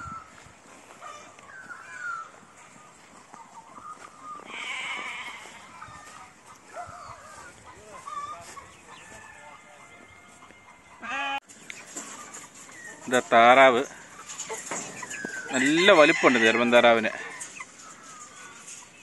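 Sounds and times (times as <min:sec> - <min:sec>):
goats bleating: 0:04.4 - 0:06.2, 0:11.0 - 0:11.4.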